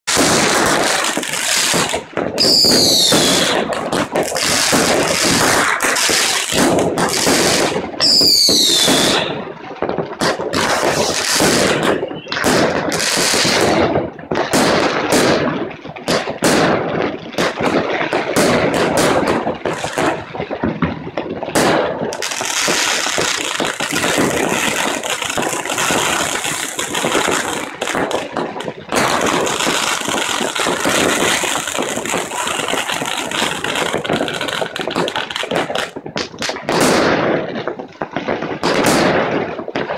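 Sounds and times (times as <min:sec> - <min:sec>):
fireworks bangs: 0:00.0 - 0:39.9
fireworks crackling: 0:00.0 - 0:39.9
falling firework whistle: 0:00.1 - 0:03.8, 0:07.3 - 0:09.4, 0:10.8 - 0:12.8.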